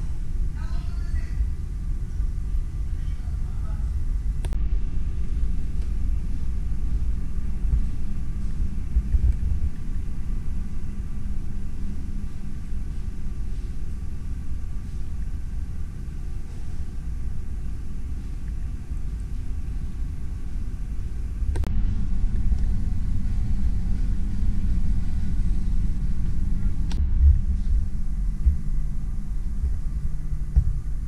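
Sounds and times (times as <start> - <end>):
faint ventilation hum: 0.0 - 31.0
low machinery rumble: 0.0 - 31.0.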